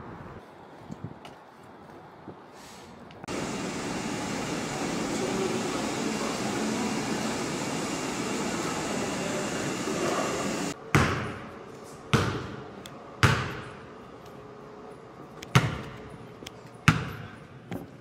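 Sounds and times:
ventilation hum: 3.2 - 18.0
basketball bouncing echoing: 13.2 - 13.8, 15.5 - 16.0, 16.9 - 17.4.

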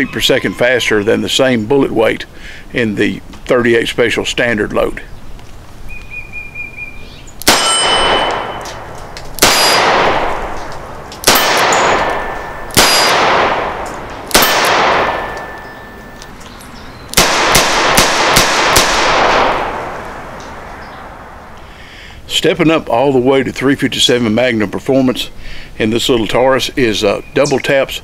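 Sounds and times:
revolver gunshots: 7.4 - 16.1, 17.1 - 21.5
ringing echo: 7.4 - 21.5.

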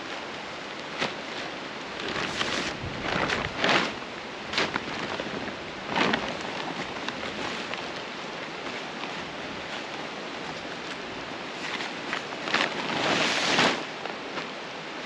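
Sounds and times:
rustling swishes: 11.5 - 14.6.

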